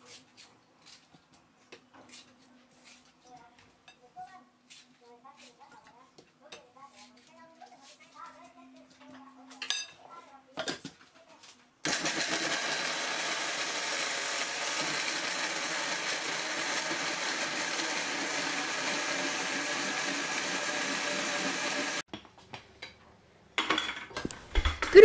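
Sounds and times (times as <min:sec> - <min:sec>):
blender running: 0:11.8 - 0:22.0.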